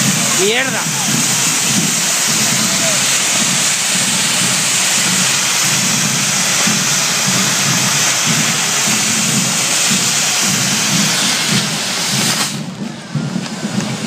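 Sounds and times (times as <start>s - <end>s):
fireworks hissing sparks: 0.0s - 14.0s.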